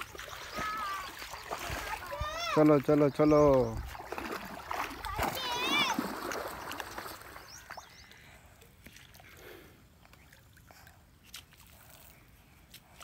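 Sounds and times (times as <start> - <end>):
faint outdoor ambience: 0.0 - 13.0.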